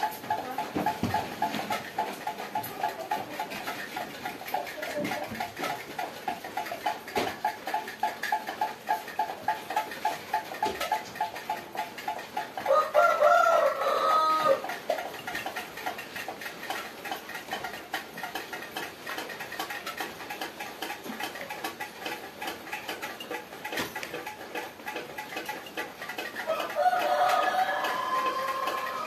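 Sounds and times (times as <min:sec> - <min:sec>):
rooster crowing: 0:12.7 - 0:14.6, 0:26.4 - 0:29.0.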